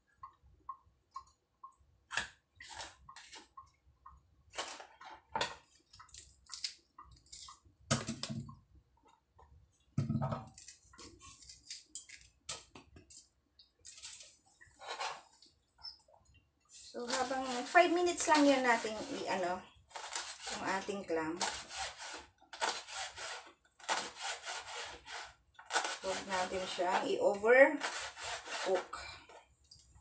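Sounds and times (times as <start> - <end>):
knife cutting on plastic board: 19.9 - 27.2, 27.8 - 28.9.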